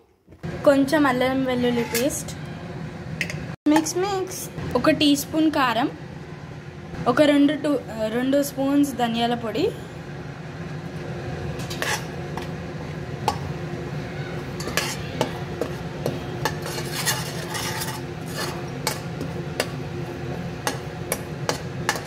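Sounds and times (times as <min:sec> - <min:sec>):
steady low hum: 0:00.4 - 0:22.0
spoon scraping a metal pan: 0:01.5 - 0:02.4, 0:11.6 - 0:12.2, 0:14.6 - 0:19.8, 0:20.7 - 0:22.0.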